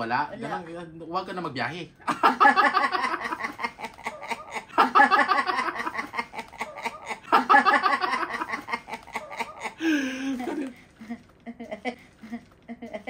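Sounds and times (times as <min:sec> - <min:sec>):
man laughing hard: 0:02.1 - 0:10.7.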